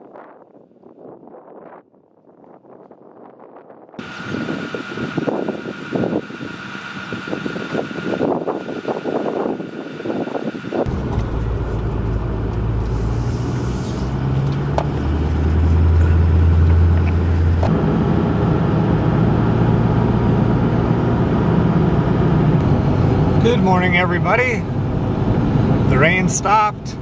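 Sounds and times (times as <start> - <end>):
road and cabin noise: 4.0 - 27.0
truck engine hum from inside cab: 4.0 - 27.0.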